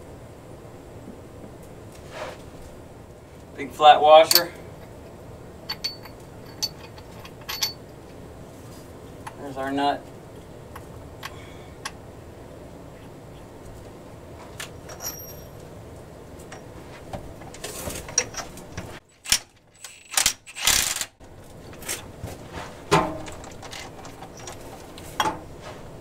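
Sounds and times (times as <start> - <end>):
metallic clinks: 4.3 - 4.9, 5.6 - 7.9, 14.8 - 15.7, 23.2 - 25.3
impact wrench bursts: 19.9 - 21.1.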